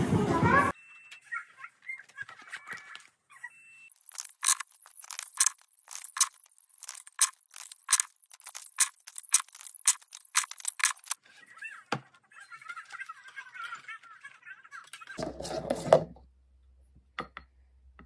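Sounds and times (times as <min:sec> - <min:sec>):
paper rustling and flapping: 0:03.9 - 0:11.2.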